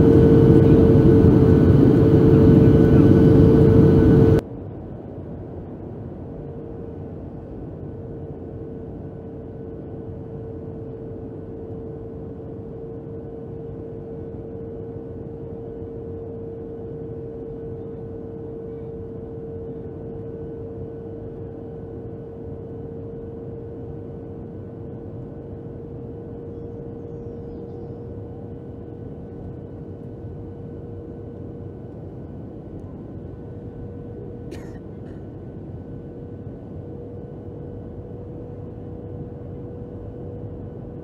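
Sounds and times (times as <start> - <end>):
steady hum: 0.0 - 4.4, 29.0 - 41.0.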